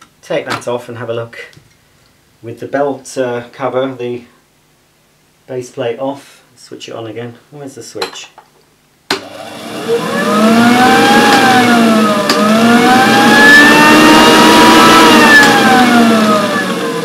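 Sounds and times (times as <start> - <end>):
vacuum cleaner motor whining: 9.1 - 17.0.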